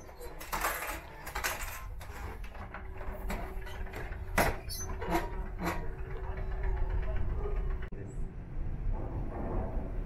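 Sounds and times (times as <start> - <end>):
low rumble and hum: 5.4 - 10.0.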